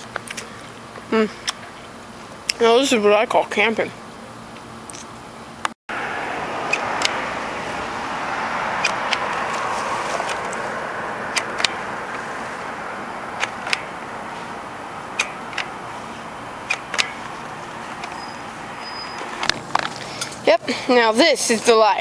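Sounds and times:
passing car: 5.9s - 20.5s.

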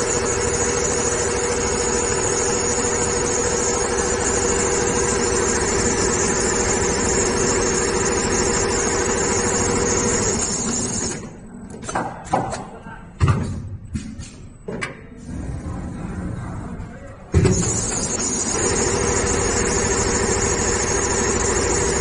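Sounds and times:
high machine whine: 0.0s - 11.5s, 17.4s - 22.0s.

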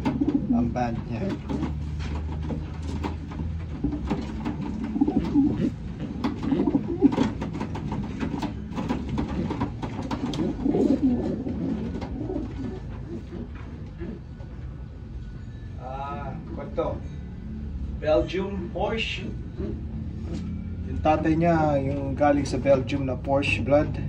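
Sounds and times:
pigeons cooing: 0.0s - 1.8s, 3.8s - 14.6s
taps and rustles: 0.0s - 14.0s.

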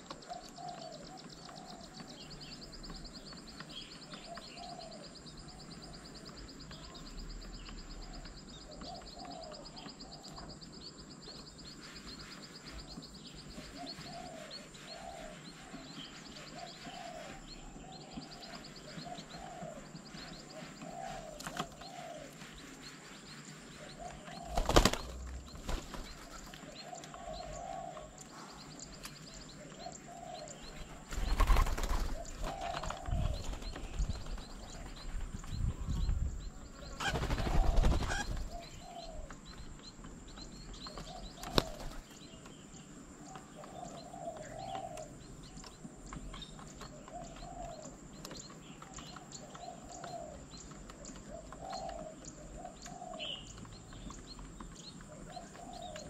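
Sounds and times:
doves cooing: 0.0s - 10.7s, 13.1s - 35.3s, 36.4s - 39.8s, 40.7s - 42.4s, 43.2s - 45.4s, 46.0s - 56.0s
wings flapping: 24.3s - 26.6s, 31.0s - 35.3s, 36.9s - 38.6s, 40.9s - 42.2s.

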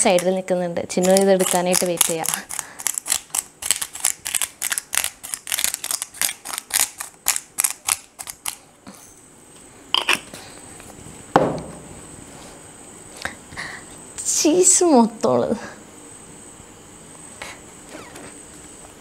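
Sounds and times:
seasoning grinder crunchy clicks: 1.0s - 8.6s
loud thump: 11.3s - 12.0s.

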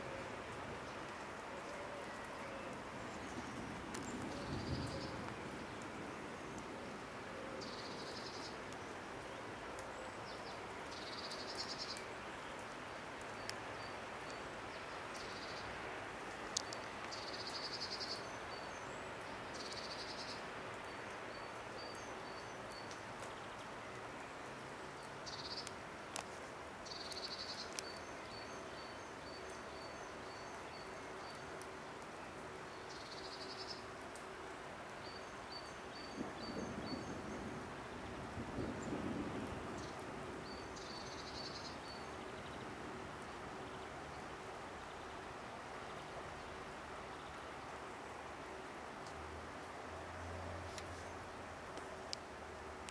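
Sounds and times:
outdoor background hiss: 0.0s - 52.9s
faint sharp clicks: 3.9s - 4.4s, 9.7s - 14.4s, 16.3s - 17.7s, 22.7s - 23.8s, 24.4s - 28.5s, 34.0s - 35.0s, 49.0s - 49.2s, 50.6s - 51.1s, 51.7s - 52.9s.

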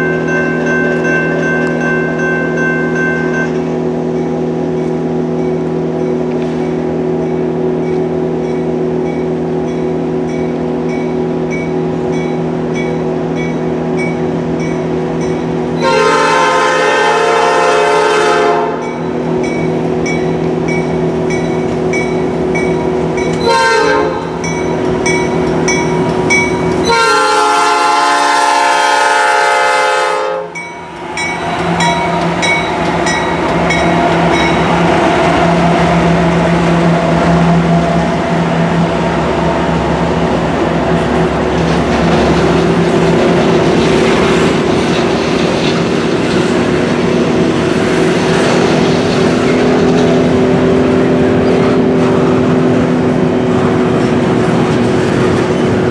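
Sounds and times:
crossing bell ringing: 0.0s - 16.5s, 18.6s - 28.8s, 29.6s - 36.8s
train rumbling past on rails: 0.0s - 55.9s
train horn blasts: 15.8s - 19.0s, 23.4s - 24.4s, 26.8s - 30.6s.

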